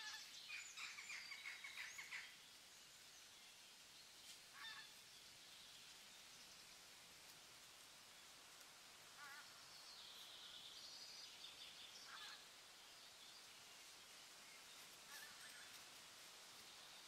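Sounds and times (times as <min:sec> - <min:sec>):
soft outdoor hiss: 0:00.0 - 0:17.0.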